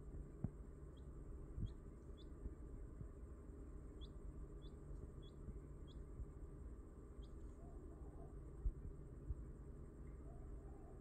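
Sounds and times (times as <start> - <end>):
quail chick peeping: 0.0 - 6.4, 7.1 - 8.4.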